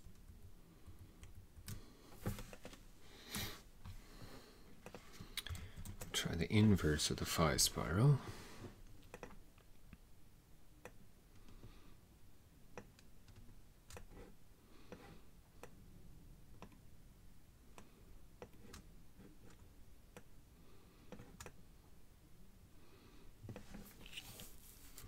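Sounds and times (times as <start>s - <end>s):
computer mouse clicks: 9.0s - 9.4s, 12.8s - 14.2s.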